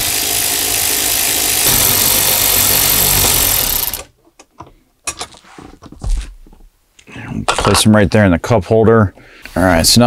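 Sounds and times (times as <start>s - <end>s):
electric ratchet spinning: 0.0s - 4.1s.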